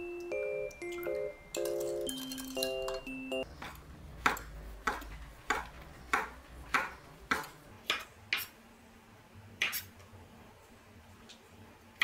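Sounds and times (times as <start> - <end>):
knife chopping on wooden board: 3.6 - 8.5.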